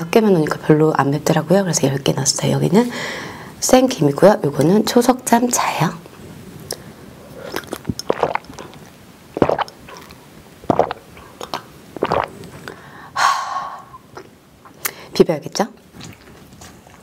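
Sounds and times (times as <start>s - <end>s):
person sipping and swallowing: 6.7s - 12.8s, 13.6s - 15.0s.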